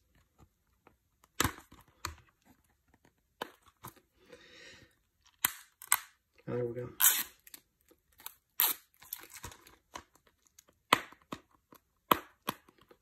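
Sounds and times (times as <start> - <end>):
plastic shrink wrap ripping: 7.0 - 7.6.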